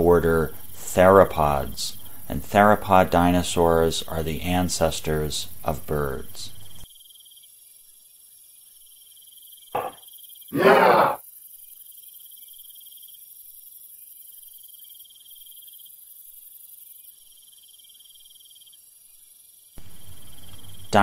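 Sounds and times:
crickets chirping: 0.0s - 21.0s
loud even noise: 10.6s - 11.2s.

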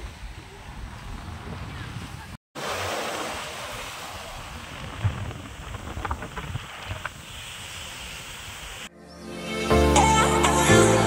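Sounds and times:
wind rumbling on microphone: 0.0s - 2.4s, 3.6s - 8.9s
surf washing over rocks: 2.6s - 8.9s.

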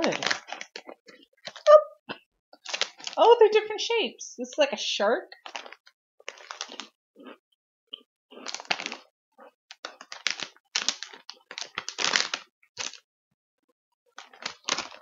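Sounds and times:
plastic bag crinkling: 0.0s - 1.7s, 2.6s - 3.2s, 5.3s - 6.9s, 8.4s - 9.1s, 9.8s - 13.0s, 14.2s - 15.0s.

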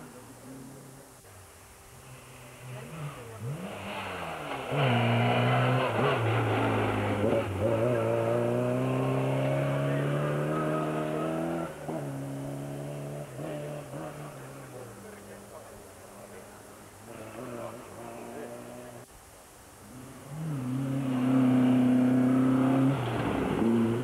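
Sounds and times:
rally car engine accelerating: 2.2s - 15.6s, 19.9s - 24.0s.

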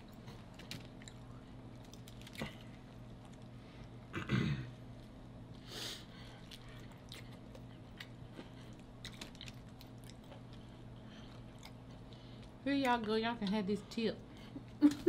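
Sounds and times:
faint steady hum: 0.0s - 15.0s
wet chewing: 6.4s - 13.6s.

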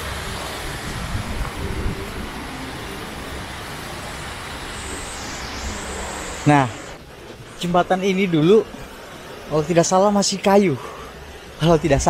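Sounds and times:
low rumbles: 0.0s - 9.5s
flowing water rushing: 0.0s - 12.0s.

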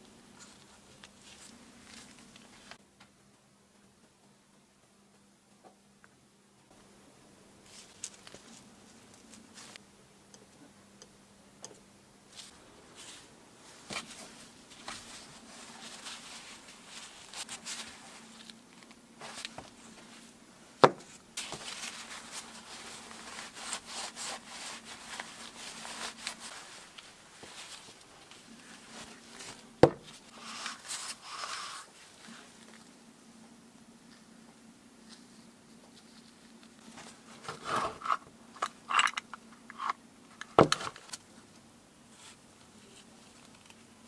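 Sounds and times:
cloth rubbing greasy parts: 12.3s - 18.5s, 21.4s - 32.6s.

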